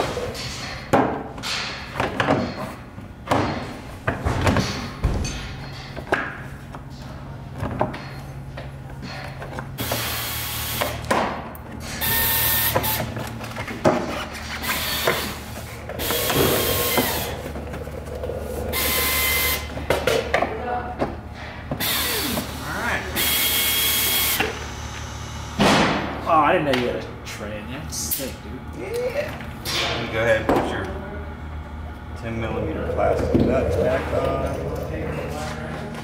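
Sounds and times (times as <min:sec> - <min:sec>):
power tool whirring: 0:12.0 - 0:13.1, 0:14.6 - 0:17.6, 0:18.2 - 0:19.7.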